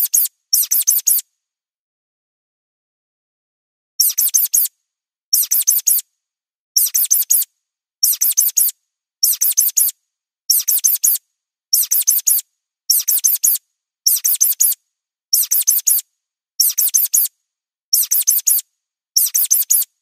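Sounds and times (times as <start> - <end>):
high-pitched mouse squeaks: 0.0 - 1.2, 4.0 - 4.7, 5.3 - 6.0, 6.8 - 16.0, 16.6 - 17.3, 17.9 - 18.6, 19.2 - 20.0.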